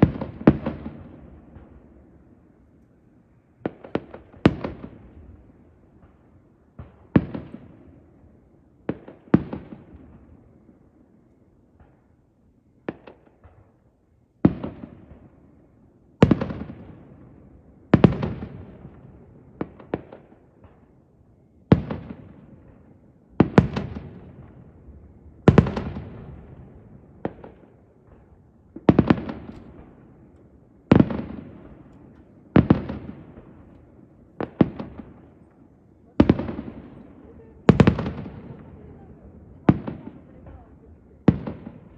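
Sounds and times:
firework bangs with echo: 0:25.3 - 0:30.1, 0:30.9 - 0:33.7, 0:36.2 - 0:41.9.

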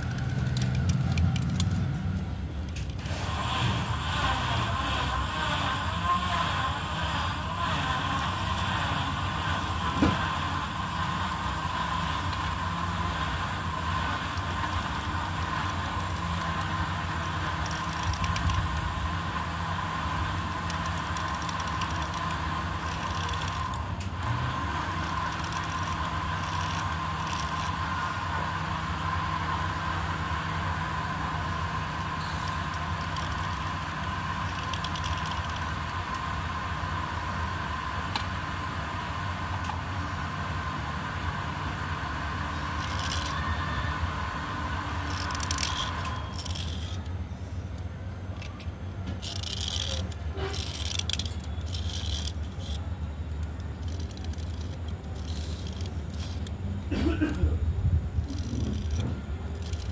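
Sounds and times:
steady mechanical hum: 0:00.0 - 0:59.9.

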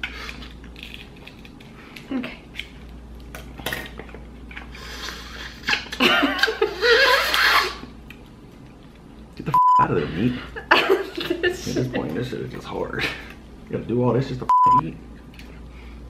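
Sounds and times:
crab shell cracking: 0:00.0 - 0:04.1
woman laughing: 0:05.4 - 0:07.4, 0:10.6 - 0:12.0
mouth sucking sounds: 0:07.0 - 0:07.9.

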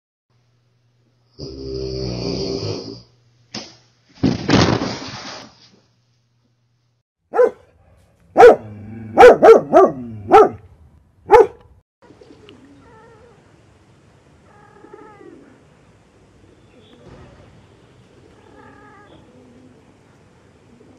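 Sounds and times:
dog barking: 0:07.3 - 0:10.6, 0:11.3 - 0:11.7.

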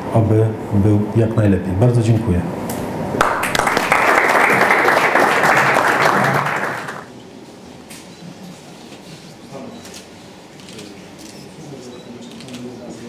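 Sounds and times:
low room murmur: 0:00.0 - 0:13.0
audience applause: 0:03.2 - 0:07.1.

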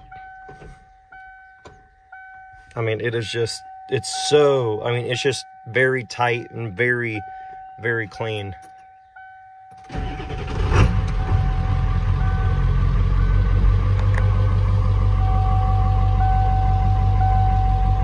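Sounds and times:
diesel engine starting and idling: 0:09.7 - 0:18.0.

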